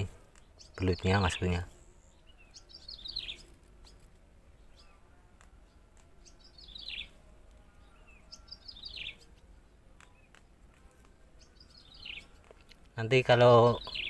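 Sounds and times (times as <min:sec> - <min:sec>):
bird singing falling notes: 0:00.0 - 0:14.0.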